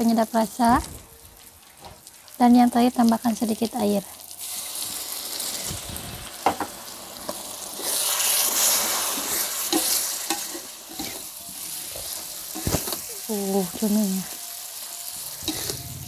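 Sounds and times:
food sizzling in a pan: 0:00.0 - 0:16.0
spatula scraping and tapping: 0:09.7 - 0:13.0.

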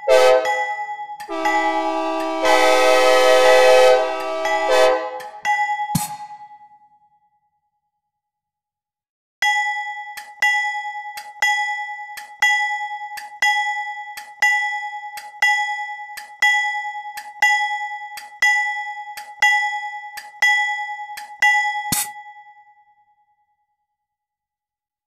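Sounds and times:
synthesized bell ringing: 0:00.0 - 0:06.4.

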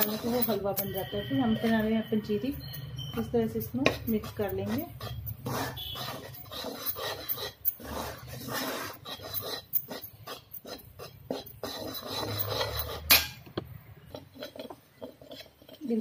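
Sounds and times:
spoon scraping metal pan: 0:00.0 - 0:16.0.

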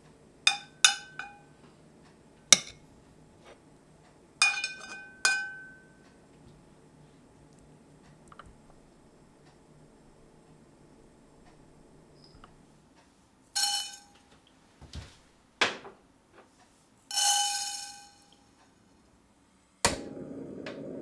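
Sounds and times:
dry wok ringing: 0:00.5 - 0:01.5, 0:04.4 - 0:06.0, 0:13.6 - 0:14.2, 0:17.1 - 0:18.4.

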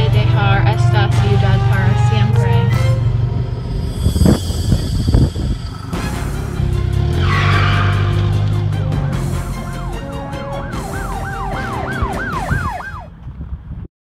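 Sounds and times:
car tyres screeching: 0:00.0 - 0:13.2
low hum: 0:00.0 - 0:13.2
police siren wailing: 0:05.1 - 0:13.2.

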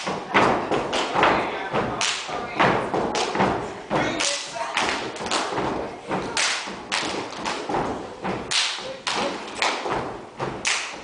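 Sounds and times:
dancers stomping on stage floor: 0:04.8 - 0:11.0.

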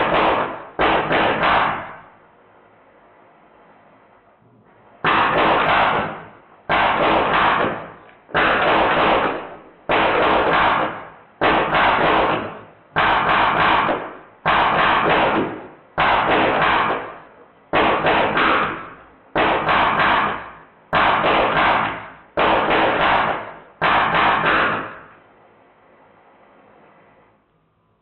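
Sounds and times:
bb gun firing rapid bursts: 0:00.0 - 0:02.1, 0:05.0 - 0:25.2.

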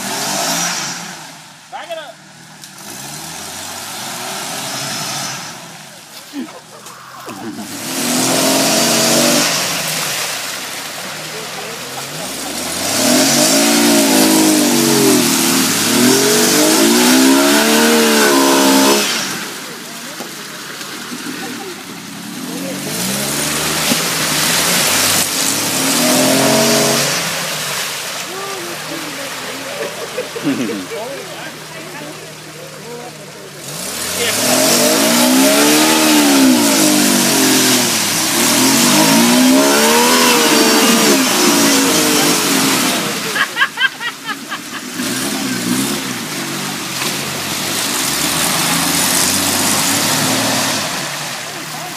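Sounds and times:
off-road engine revving: 0:00.0 - 0:51.9
mud and water spraying: 0:02.3 - 0:51.9.

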